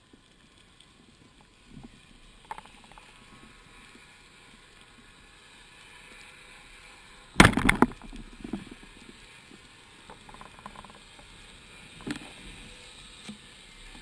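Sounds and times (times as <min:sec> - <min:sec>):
light clicks and ticks: 0:00.0 - 0:04.0, 0:07.7 - 0:11.4
speargun firing clatter: 0:07.4 - 0:08.1.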